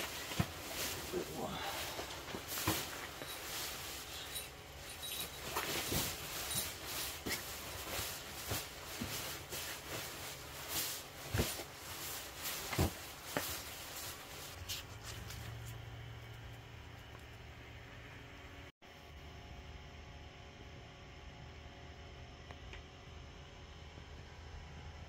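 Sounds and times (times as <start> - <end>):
nylon blanket rustling: 0.0 - 15.0.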